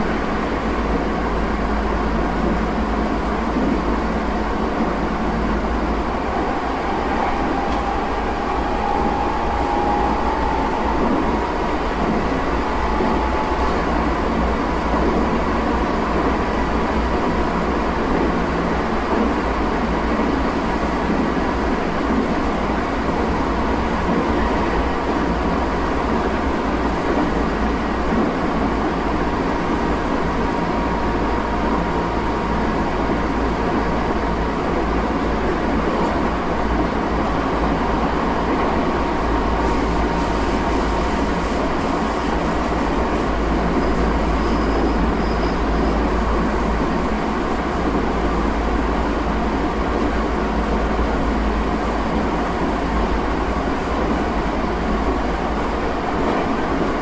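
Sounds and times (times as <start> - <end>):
faint steady whine: 0.0 - 17.7
train wheels rumbling on rail: 0.0 - 57.0
high squeal-like tones: 5.5 - 16.2.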